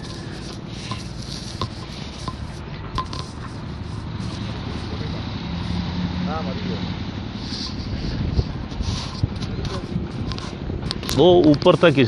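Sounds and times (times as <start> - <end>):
taps and scrapes: 0.0 - 5.1, 7.5 - 12.0.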